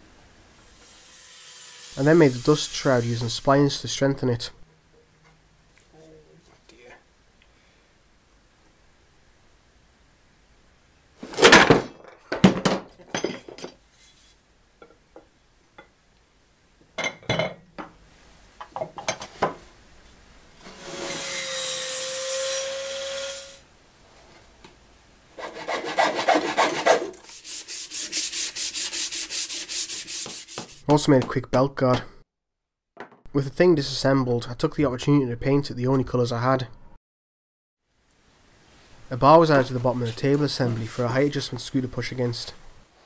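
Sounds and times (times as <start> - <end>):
sandpaper rubbing on wood: 1.6 - 3.4, 25.4 - 30.8.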